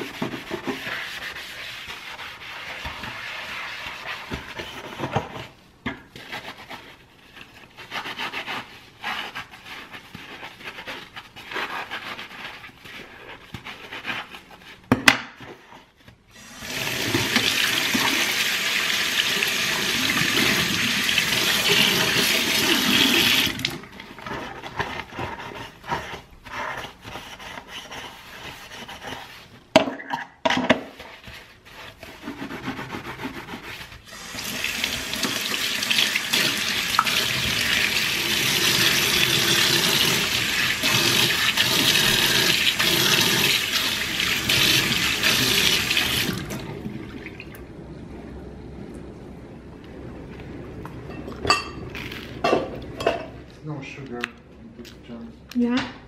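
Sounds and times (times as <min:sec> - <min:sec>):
sponge scrubbing sink: 0:00.0 - 0:30.1, 0:30.7 - 0:47.4
tap water running: 0:16.3 - 0:24.0, 0:34.1 - 0:47.6.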